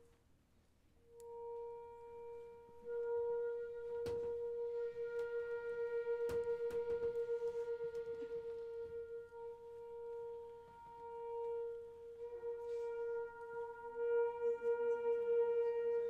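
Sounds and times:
soft low brass notes: 1.1 - 16.0.

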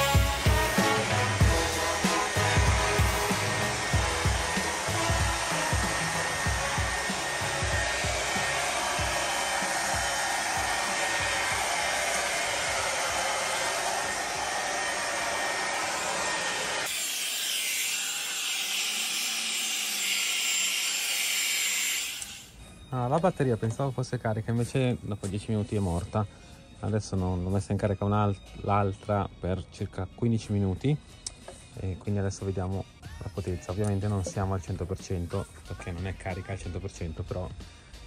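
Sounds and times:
leaf blower rushing air: 0.0 - 16.9.

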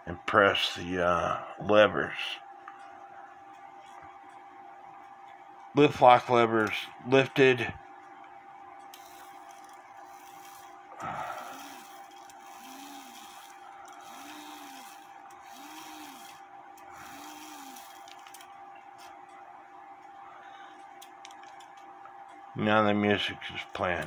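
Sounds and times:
faint steady hum: 0.0 - 24.0
cuckoo clock whirs: 8.9 - 19.0.

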